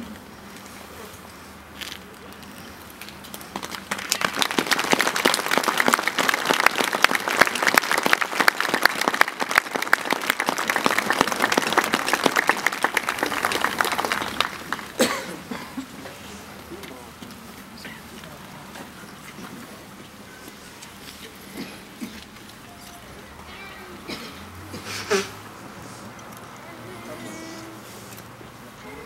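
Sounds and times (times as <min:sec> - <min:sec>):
large crowd clapping: 0:03.3 - 0:15.1.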